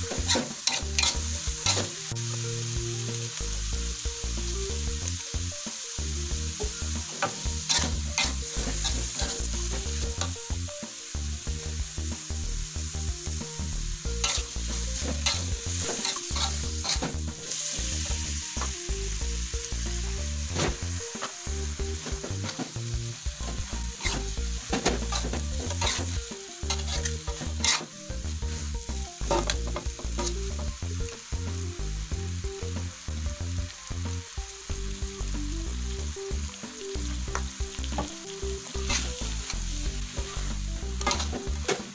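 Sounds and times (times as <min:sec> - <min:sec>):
metal spatula scraping a pan: 0:00.0 - 0:02.1, 0:07.0 - 0:10.4, 0:14.1 - 0:18.2, 0:22.0 - 0:30.5, 0:38.7 - 0:41.9
food sizzling in a wok: 0:00.0 - 0:41.9.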